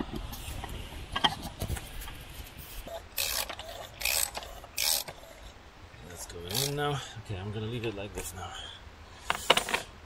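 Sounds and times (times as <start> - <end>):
ratchet wrench clicking: 3.2 - 5.2, 6.5 - 6.8.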